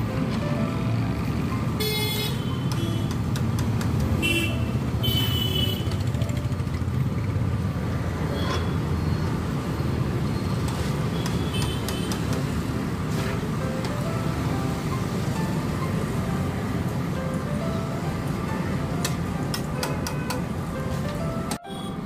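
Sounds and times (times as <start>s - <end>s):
street traffic rumble: 0.0s - 22.0s
vehicle horn toots: 4.2s - 6.0s.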